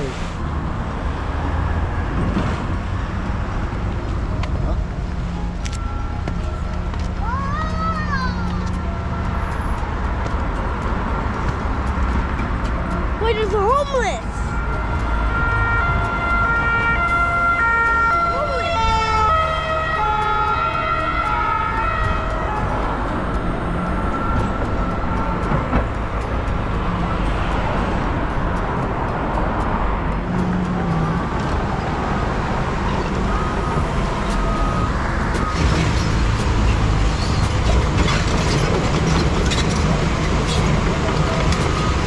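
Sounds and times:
traffic rumble: 0:00.0 - 0:42.0
emergency vehicle siren: 0:14.2 - 0:37.6, 0:40.0 - 0:42.0.

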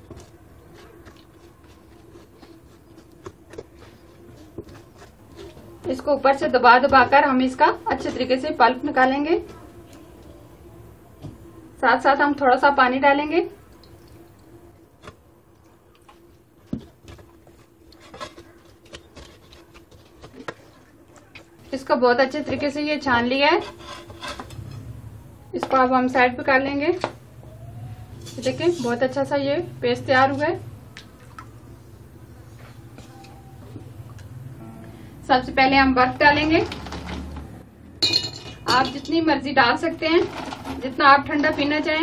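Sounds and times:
spatula squelching pulp in strainer: 0:00.0 - 0:08.2
faint steady hum: 0:00.0 - 0:36.3
wooden spatula scraping strainer: 0:23.3 - 0:24.9, 0:28.1 - 0:29.2.

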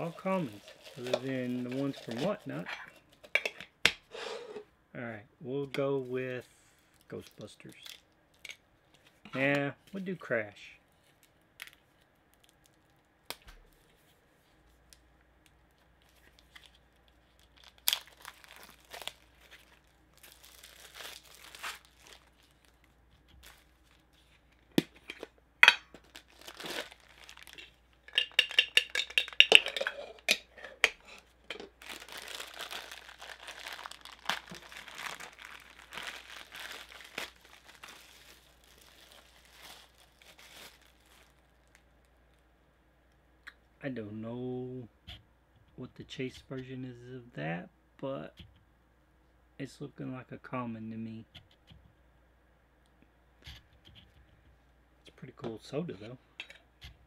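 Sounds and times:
bubble-wrap crinkling and tearing: 0:00.0 - 0:02.7, 0:06.9 - 0:09.1, 0:10.9 - 0:13.8, 0:14.7 - 0:25.0, 0:25.9 - 0:29.5, 0:31.1 - 0:42.4.

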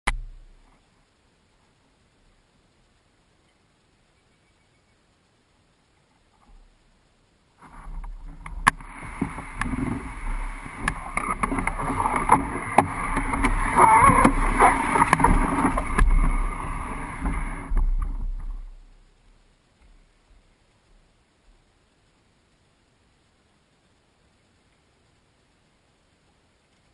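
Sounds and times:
canoe hull scraping over ground: 0:07.6 - 0:19.0.

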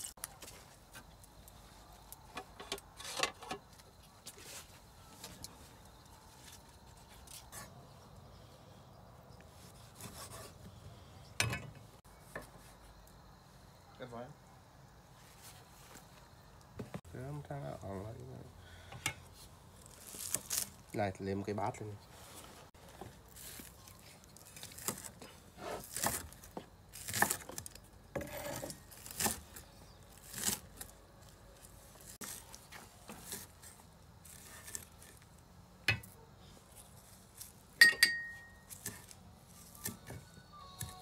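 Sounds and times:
sharp ringing clink: 0:37.8 - 0:38.7.

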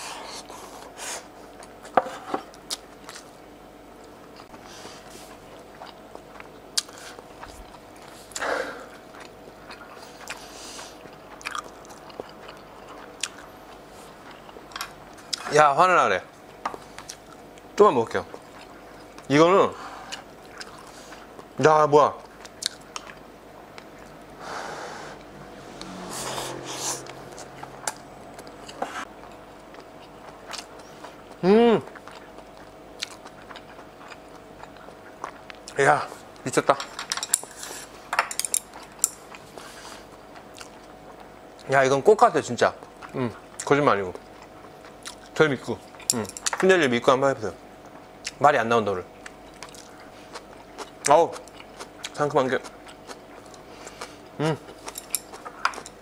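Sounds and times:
quiet chewing: 0:04.0 - 0:15.5, 0:16.7 - 0:17.7, 0:26.7 - 0:36.4, 0:37.6 - 0:41.7, 0:42.7 - 0:46.6, 0:49.2 - 0:56.0
person breathing: 0:08.2 - 0:08.9, 0:24.4 - 0:25.2
man humming: 0:31.4 - 0:31.9, 0:54.4 - 0:54.7.

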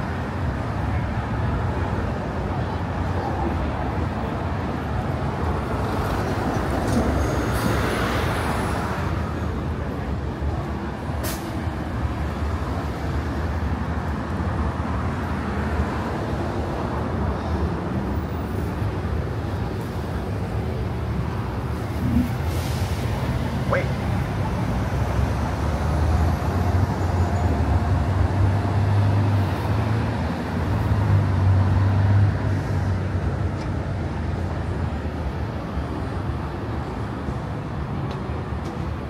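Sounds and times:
street traffic rumble: 0:00.0 - 0:39.0
traffic hissing: 0:11.1 - 0:13.3, 0:16.9 - 0:31.2.

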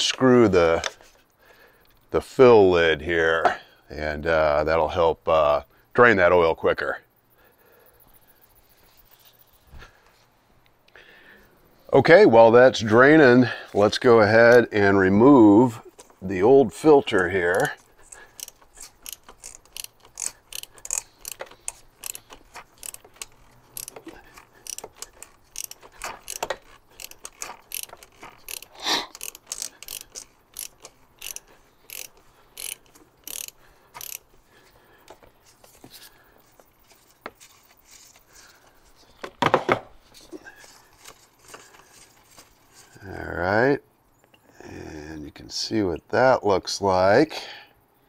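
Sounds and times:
ratchet wrench clicking: 0:17.5 - 0:34.4.

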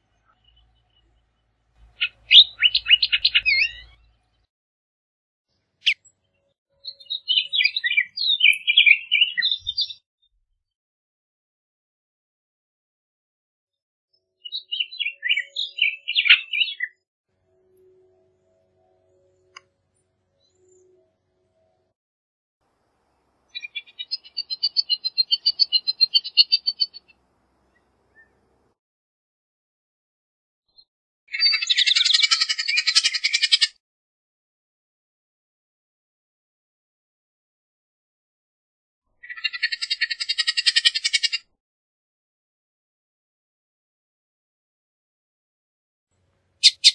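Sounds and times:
oriole singing whistled notes: 0:02.0 - 0:04.0, 0:06.8 - 0:10.0, 0:14.2 - 0:17.0, 0:23.5 - 0:28.4.

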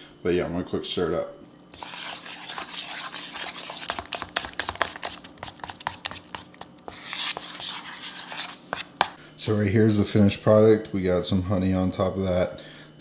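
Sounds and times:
spoon scraping bowl: 0:01.7 - 0:09.2.

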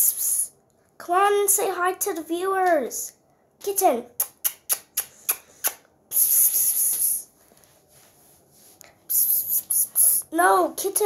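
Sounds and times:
person hissing to call a cat: 0:05.2 - 0:07.3, 0:09.1 - 0:10.3.

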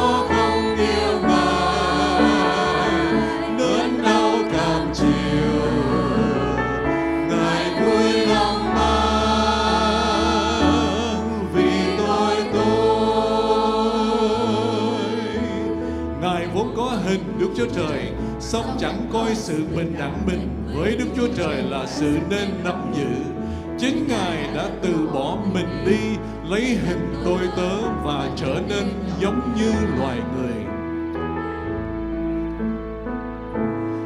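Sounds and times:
choir singing: 0:00.0 - 0:30.7
instrumental accompaniment: 0:00.0 - 0:34.0.

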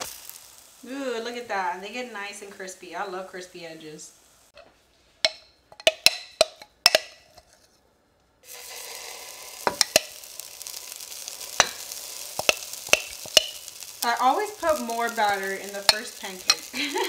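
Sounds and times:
pancakes sizzling in a pan: 0:00.0 - 0:04.6, 0:08.4 - 0:17.0
utensil tapping a frying pan: 0:05.2 - 0:07.2, 0:09.6 - 0:10.3, 0:11.4 - 0:14.0, 0:14.8 - 0:17.0.

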